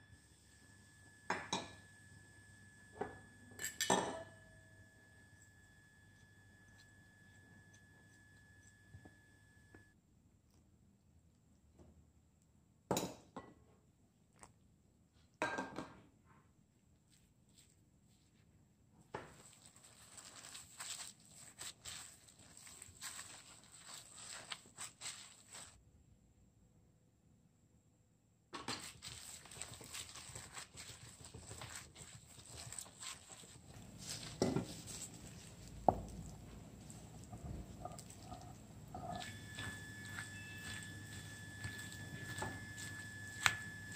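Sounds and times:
bowl clinking against glass bowl: 1.3s - 1.9s, 3.0s - 4.5s, 37.4s - 43.9s
hands kneading dough: 16.4s - 25.8s, 28.6s - 43.9s
spatula scraping pan: 29.0s - 43.8s.

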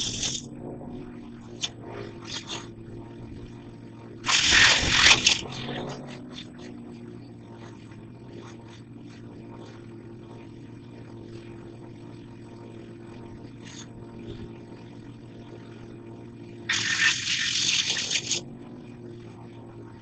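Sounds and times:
engine droning: 0.0s - 20.0s
loud harsh rush of noise: 4.2s - 5.5s.

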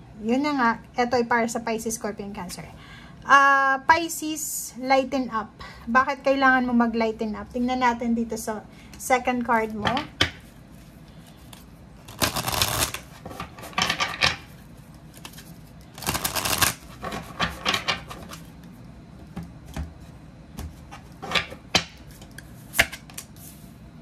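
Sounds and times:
cards shuffling: 10.8s - 13.9s, 15.1s - 18.5s.

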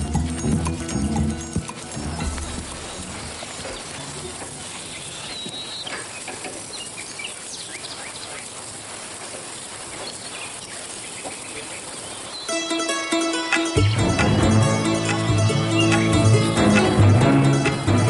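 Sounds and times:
outdoor ambient hiss: 0.0s - 18.0s
faint bird chirps: 2.0s - 8.5s.

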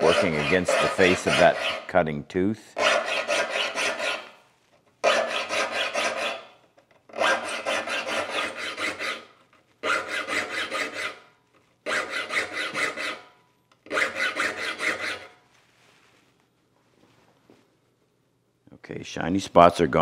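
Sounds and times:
file rasping on saw teeth: 0.0s - 1.9s, 2.8s - 4.4s, 5.0s - 11.2s, 11.8s - 13.3s, 13.9s - 15.3s.

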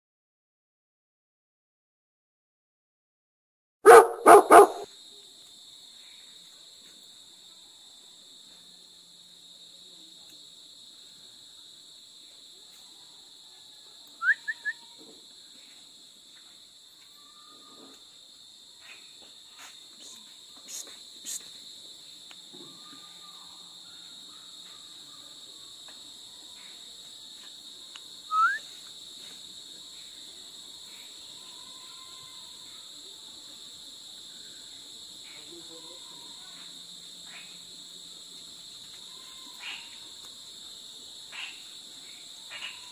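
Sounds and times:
crickets trilling: 3.9s - 42.9s
rising whistle-like chirps: 14.2s - 14.8s, 28.3s - 28.8s.

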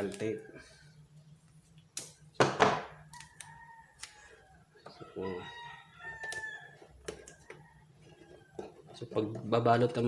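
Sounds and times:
rooster crowing: 3.1s - 8.8s.

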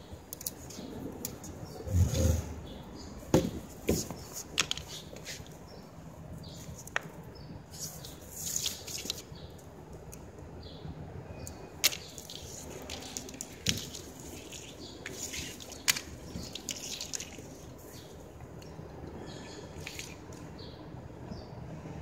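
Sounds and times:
plastic strand rustling and scraping: 11.9s - 18.1s.

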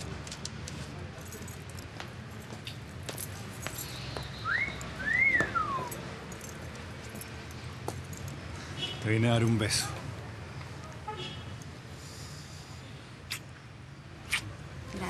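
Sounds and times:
wolf whistle: 4.3s - 5.9s.

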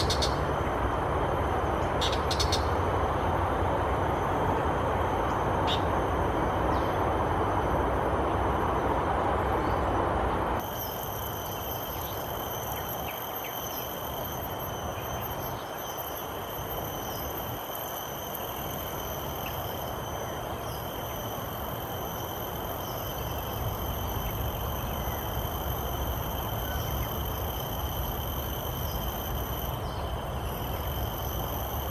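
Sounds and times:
high-pitched insect drone: 0.0s - 0.8s, 10.6s - 31.9s.

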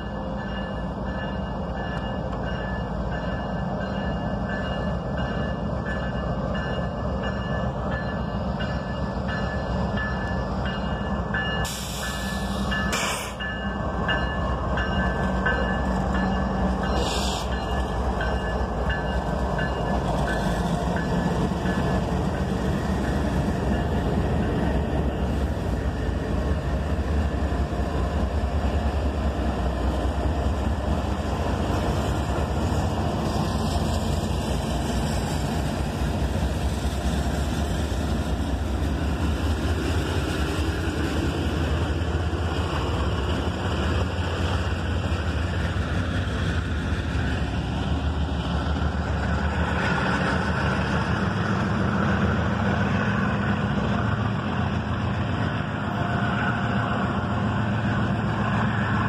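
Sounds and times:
diesel locomotives rumbling past: 0.0s - 59.0s.

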